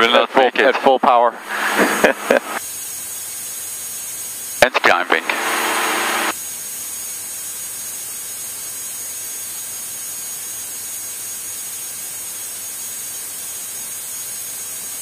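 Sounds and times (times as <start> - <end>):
aircraft cabin hiss: 1.4 - 2.6, 4.6 - 6.3.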